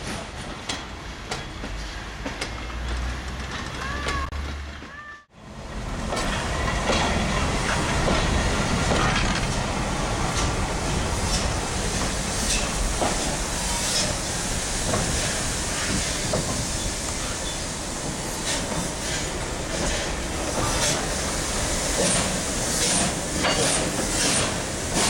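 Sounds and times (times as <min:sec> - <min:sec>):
train wheels clicking over rail joints: 0:00.0 - 0:05.1, 0:06.0 - 0:25.0
steady hiss of steam: 0:09.6 - 0:25.0.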